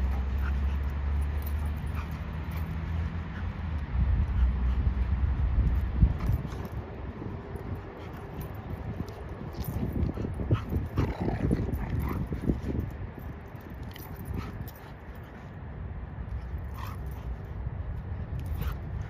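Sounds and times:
dogs yipping and whining: 0:00.0 - 0:03.6, 0:16.4 - 0:17.5
steady low rumble: 0:00.0 - 0:19.0.

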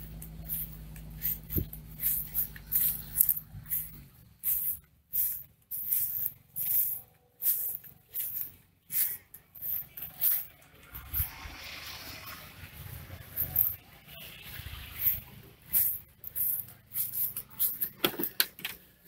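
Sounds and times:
steady low hum: 0:00.0 - 0:11.6.

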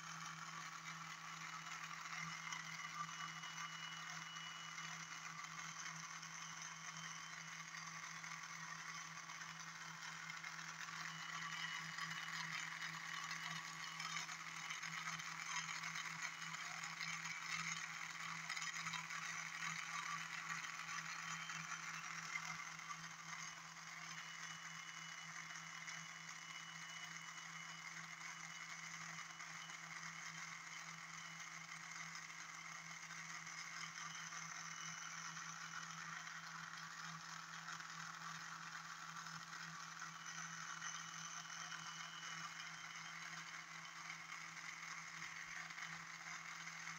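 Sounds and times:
whirring rattle of spinning rotor: 0:00.0 - 0:46.9.

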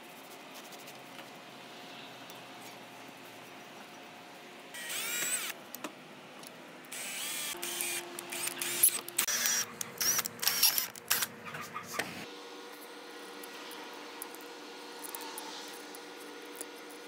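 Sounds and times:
electric drill boring into steel: 0:04.8 - 0:05.6, 0:06.9 - 0:10.9.

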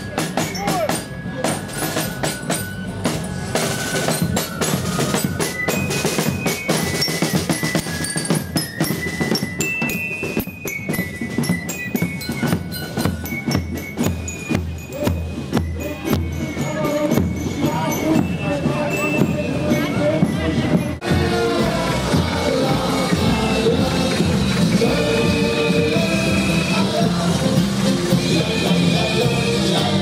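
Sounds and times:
snare drums: 0:00.0 - 0:30.0
bass drum beating: 0:21.0 - 0:30.0.

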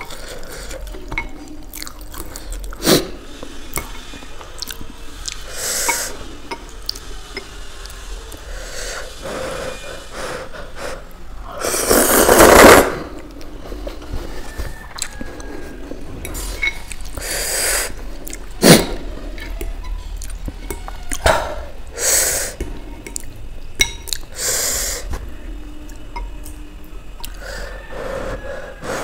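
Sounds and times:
person slurping noodles: 0:11.5 - 0:13.1.

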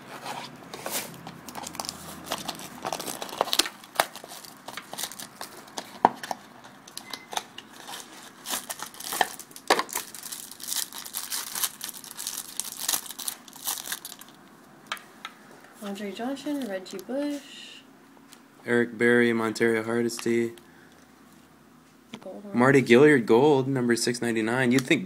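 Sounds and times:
plastic wrapping tearing and crinkling: 0:00.8 - 0:14.4.

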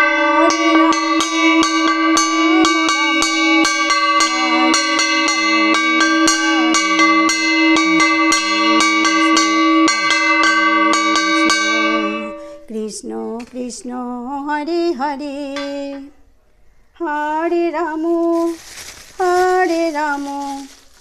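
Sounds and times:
hand bell ringing: 0:00.0 - 0:12.6
faint voice chanting: 0:00.2 - 0:09.8.

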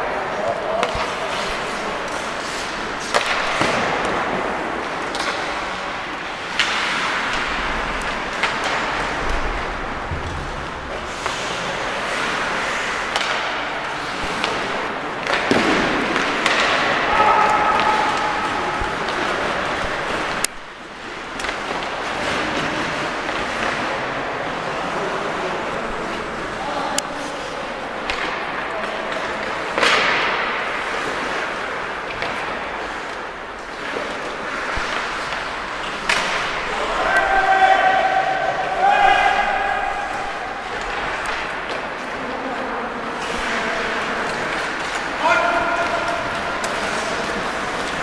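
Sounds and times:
hockey sticks and puck clacking: 0:00.0 - 0:48.0
ice rink ambience hiss: 0:00.0 - 0:48.0
skating and hall noise: 0:00.0 - 0:48.0.

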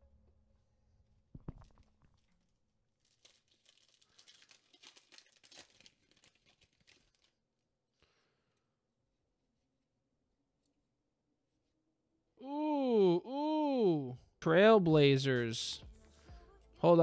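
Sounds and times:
foil wrapper tearing: 0:01.7 - 0:07.4.

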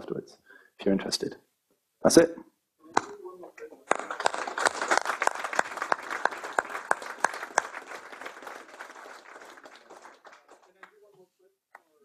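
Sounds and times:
audience applauding: 0:03.9 - 0:11.2.

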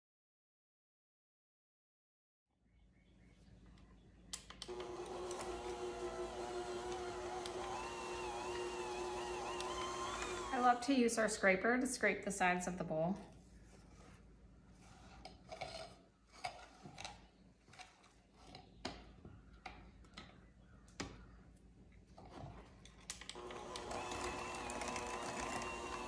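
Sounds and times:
electric hand mixer running: 0:04.7 - 0:11.0, 0:23.4 - 0:26.0.

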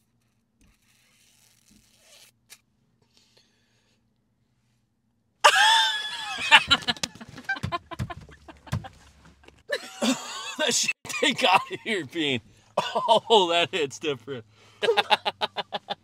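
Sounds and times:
woman shrieking laughter: 0:05.4 - 0:09.0
man laughing: 0:05.4 - 0:14.0, 0:14.8 - 0:16.0.

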